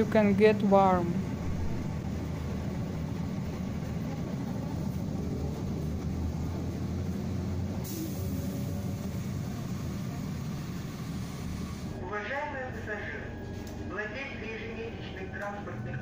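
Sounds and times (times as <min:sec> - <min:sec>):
trolleybus cabin rumble: 0:00.0 - 0:12.1.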